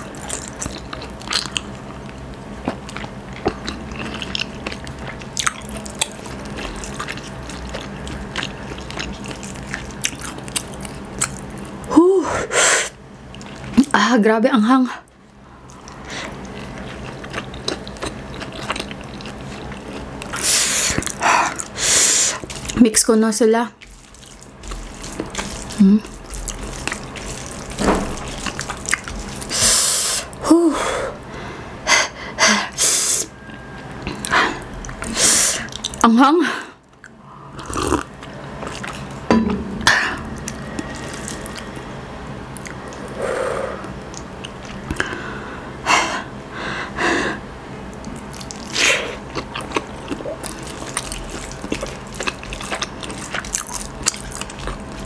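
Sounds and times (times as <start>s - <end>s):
close-mic chewing: 0.0s - 11.9s, 13.2s - 14.0s, 15.0s - 30.4s, 33.3s - 39.3s, 42.5s - 45.4s, 47.8s - 55.0s
food squished by hand: 23.8s - 29.6s
breath blown through lips: 43.0s - 44.0s.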